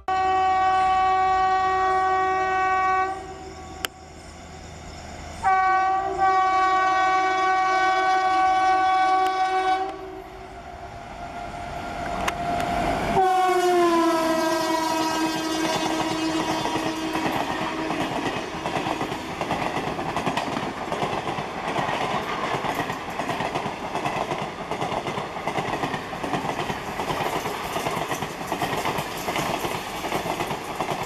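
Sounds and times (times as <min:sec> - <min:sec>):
train air horn blasts: 0:00.0 - 0:04.0, 0:05.4 - 0:10.5, 0:13.1 - 0:18.7
train passing at speed: 0:00.0 - 0:31.0.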